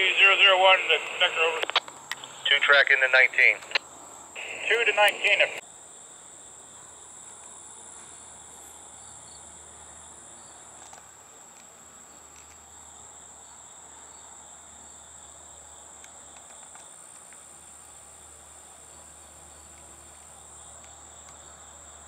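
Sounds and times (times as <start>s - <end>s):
faint low hum: 0.0s - 5.6s
insects droning: 0.0s - 22.0s.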